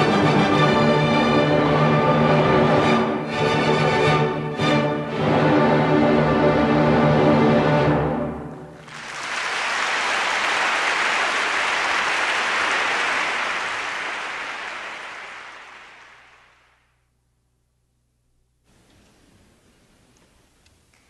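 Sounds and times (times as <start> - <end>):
audience applauding: 8.7 - 16.8.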